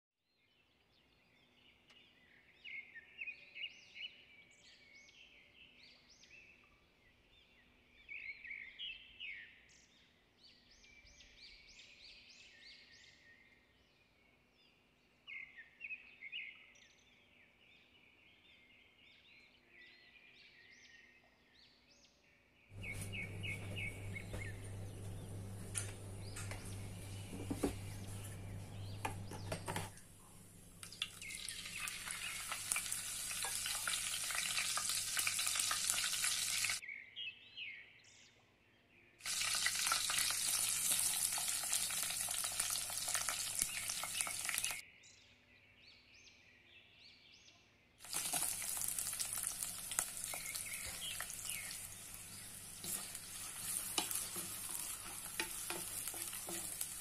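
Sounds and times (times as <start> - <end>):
small birds chirping: 0.3 - 57.0
low hum: 22.8 - 31.4
oil sizzling in a pot: 22.8 - 36.8, 39.2 - 44.8, 48.0 - 57.0.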